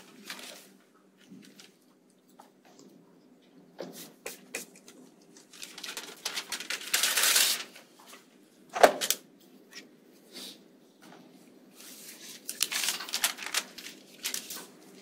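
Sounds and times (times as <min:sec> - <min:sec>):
paper rustling: 0:00.0 - 0:01.9, 0:04.0 - 0:08.3, 0:11.7 - 0:15.0.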